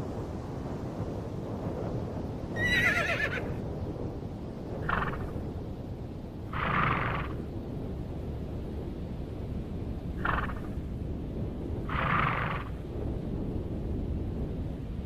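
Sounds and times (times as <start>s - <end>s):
low background rush: 0.0s - 15.0s
horse whinnying: 2.6s - 3.6s, 4.8s - 5.4s, 6.6s - 7.4s, 11.9s - 12.7s.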